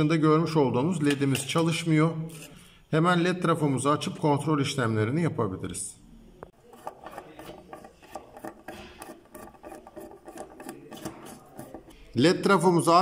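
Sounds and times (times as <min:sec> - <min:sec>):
screwdriver scraping metal: 0:06.6 - 0:12.0.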